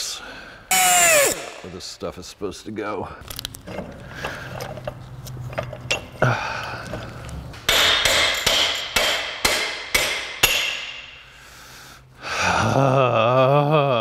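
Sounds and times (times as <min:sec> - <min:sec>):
hammer striking metal: 0:07.6 - 0:11.3.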